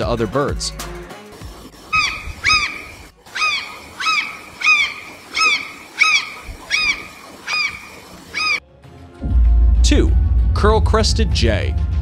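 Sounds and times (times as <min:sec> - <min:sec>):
bird calling: 0:01.8 - 0:08.6.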